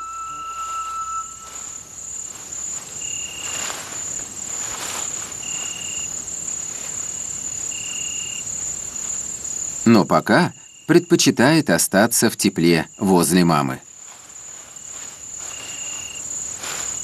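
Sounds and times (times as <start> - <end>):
insects trilling: 0.0 - 17.0
lower insect call: 0.0 - 17.0
soft rustling: 0.5 - 9.8, 13.8 - 17.0.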